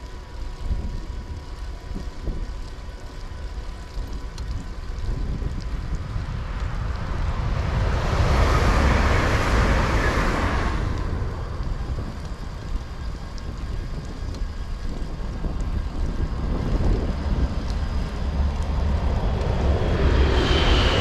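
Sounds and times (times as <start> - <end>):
wind rumble on microphone: 0.0 - 21.0
vehicle passing on road: 4.9 - 13.7, 15.9 - 21.0.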